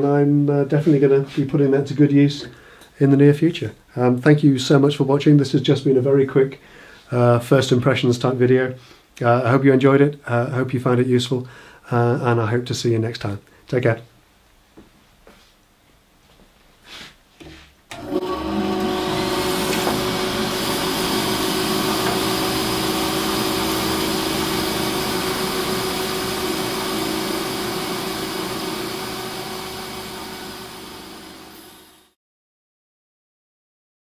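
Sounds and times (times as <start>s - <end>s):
bandsaw cutting wood: 17.9s - 32.2s
bandsaw motor whine: 17.9s - 32.2s.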